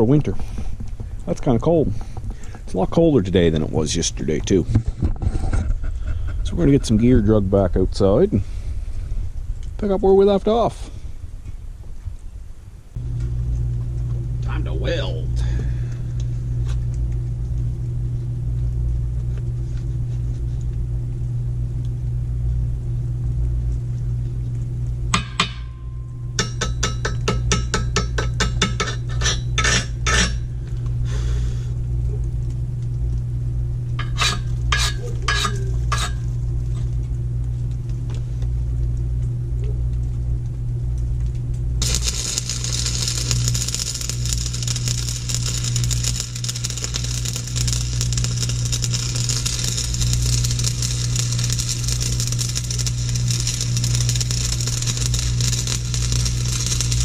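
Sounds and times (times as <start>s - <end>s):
welding arc crackling and sizzling: 9.3s - 57.0s
stick welder humming: 12.9s - 20.8s, 24.8s - 38.9s, 41.2s - 57.0s.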